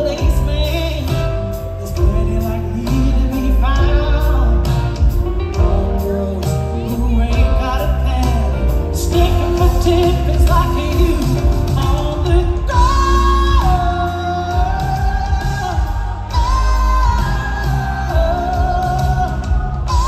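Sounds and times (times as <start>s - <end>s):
live band playing: 0.0s - 20.0s
woman singing: 5.6s - 20.0s.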